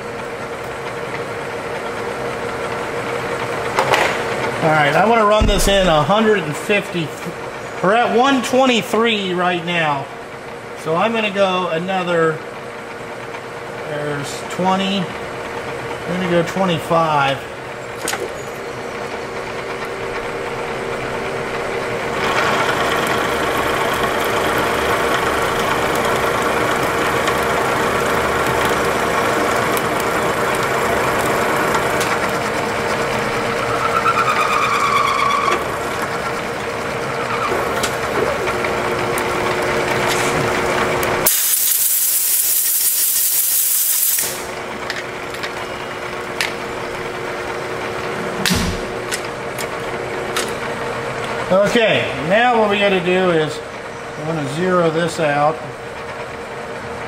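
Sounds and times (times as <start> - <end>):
loud hiss: 41.3 - 44.6.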